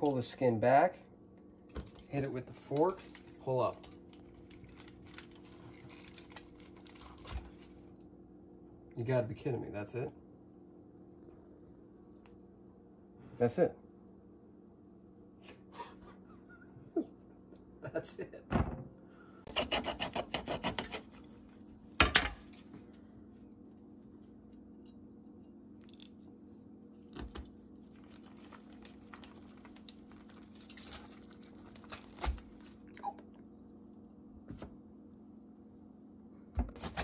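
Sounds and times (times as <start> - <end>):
steady low hum: 0.0 - 37.0
knife scraping fish: 19.5 - 21.3.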